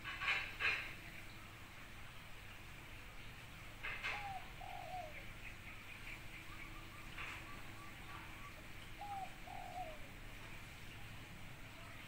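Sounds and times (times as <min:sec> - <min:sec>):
dove cooing: 0:03.8 - 0:05.6, 0:06.2 - 0:10.3
faint small bird chirps: 0:04.0 - 0:10.1.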